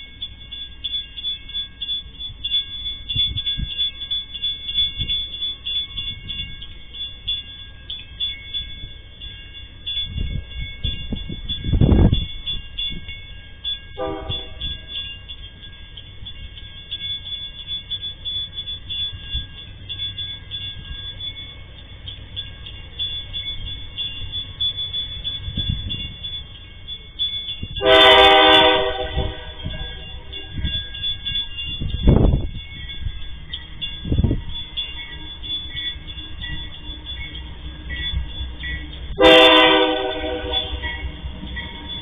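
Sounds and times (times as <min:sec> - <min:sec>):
locomotive engine rumble: 0:00.0 - 0:42.0
thin high ringing: 0:00.0 - 0:42.0
locomotive horn blast: 0:14.0 - 0:14.7, 0:27.8 - 0:30.5, 0:39.2 - 0:41.1.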